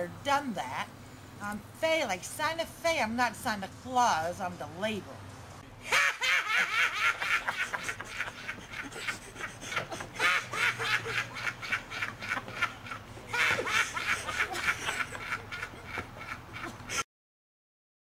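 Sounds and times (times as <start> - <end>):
woman laughing: 5.8 - 17.0.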